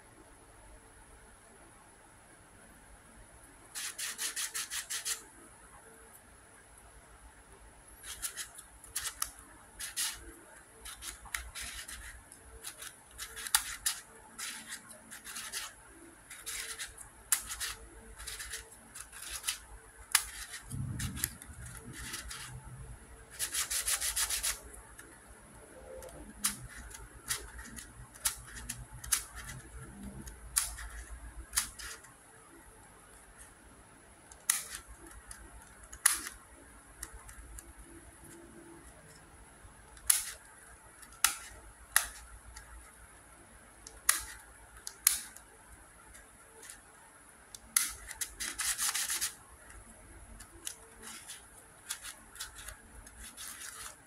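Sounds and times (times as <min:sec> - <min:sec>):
plastic puzzle clicking as turned: 0:03.8 - 0:05.3, 0:08.0 - 0:22.6, 0:23.3 - 0:25.2, 0:26.0 - 0:32.2, 0:34.3 - 0:39.2, 0:39.9 - 0:43.0, 0:43.8 - 0:46.8, 0:47.5 - 0:54.0.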